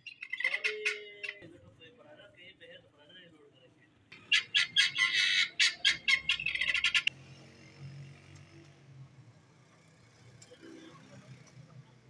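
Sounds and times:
poultry squawking: 0:00.0 - 0:01.4, 0:04.1 - 0:07.1.

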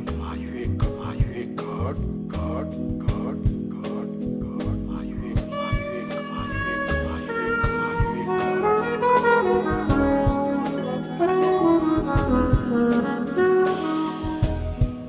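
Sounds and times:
horn melody: 0:05.4 - 0:15.0
jazz band playing: 0:05.4 - 0:15.0.

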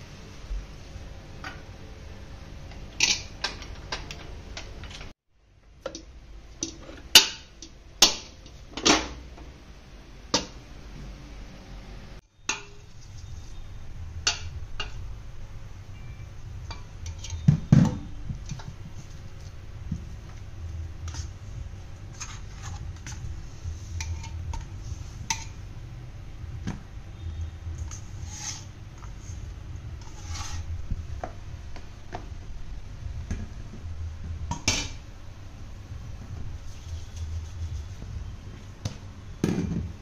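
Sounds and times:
metal bowl knocks and clanks: 0:34.5 - 0:35.0.

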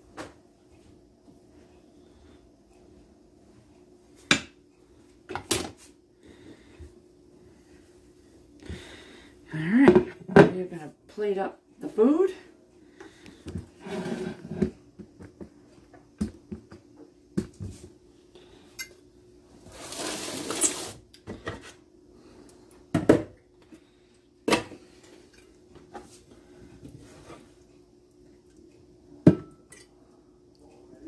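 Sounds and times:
utensil scraping a pot: 0:13.8 - 0:14.6, 0:19.7 - 0:21.0.

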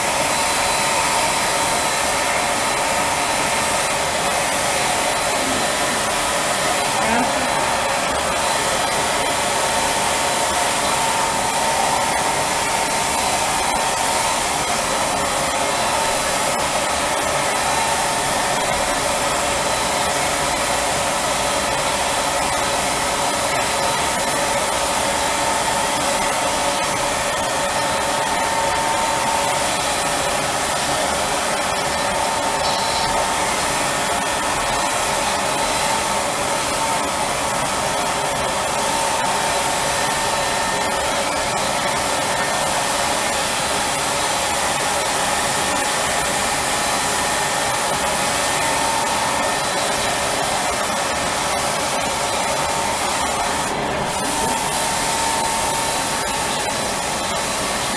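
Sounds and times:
blow dryer whine: 0:00.0 - 0:57.9
spray machine air rush: 0:00.0 - 0:57.9.

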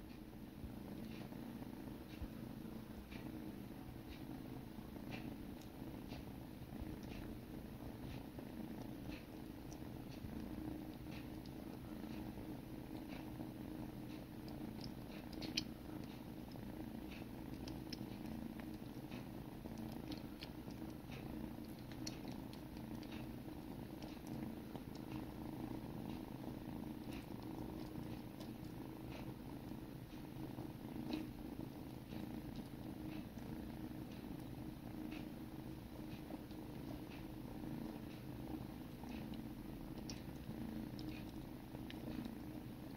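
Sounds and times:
kittens purring: 0:00.0 - 0:42.9.

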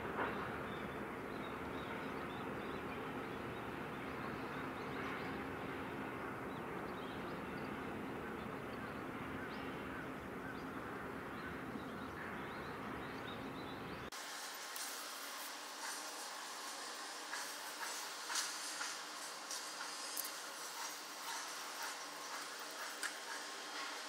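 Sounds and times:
low mechanical hum: 0:00.0 - 0:24.0
faint bird calls: 0:06.8 - 0:14.1.

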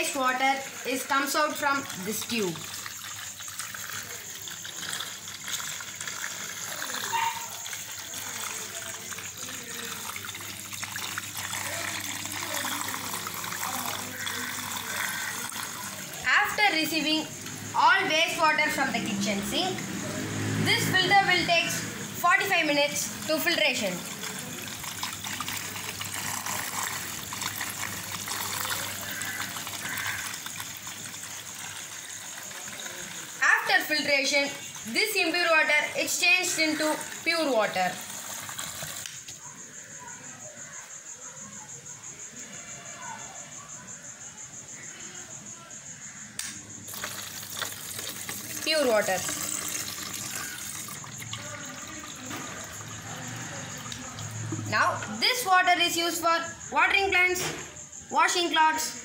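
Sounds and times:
water pouring into plastic tub: 0:00.0 - 0:17.7, 0:19.8 - 0:39.3, 0:46.9 - 0:56.0
pump humming: 0:01.6 - 0:16.6, 0:21.8 - 0:35.4, 0:46.9 - 0:55.0.

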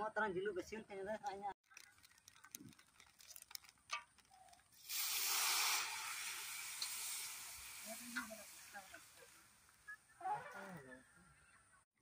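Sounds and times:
water hissing in hot oil: 0:04.7 - 0:09.8.

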